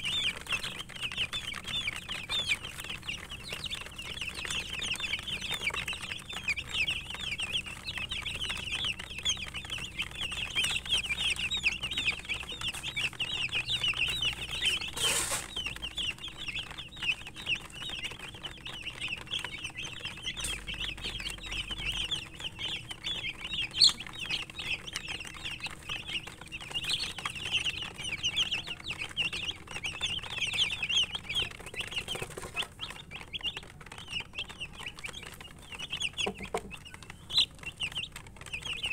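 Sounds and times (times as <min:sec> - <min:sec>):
baby chicks peeping: 0:00.0 - 0:38.9
rustle: 0:14.9 - 0:15.6.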